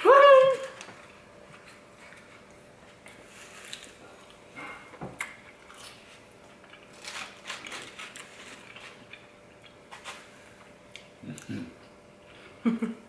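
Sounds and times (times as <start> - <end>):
chewing: 5.2 - 12.0.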